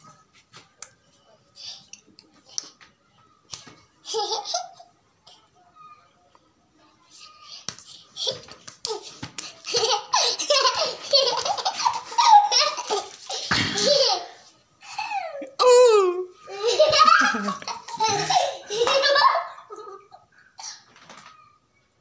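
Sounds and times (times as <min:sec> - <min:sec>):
boy laughing: 0:09.6 - 0:20.3.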